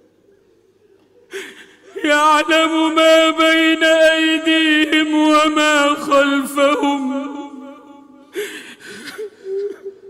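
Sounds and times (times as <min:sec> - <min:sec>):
man chanting: 0:01.6 - 0:08.4.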